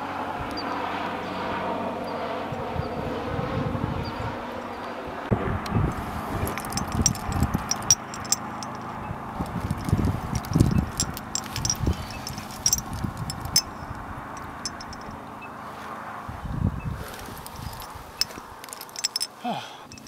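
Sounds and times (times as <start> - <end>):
distant highway traffic hum: 0.0 - 20.0
climbing gear clinking: 5.9 - 15.2, 17.1 - 20.0.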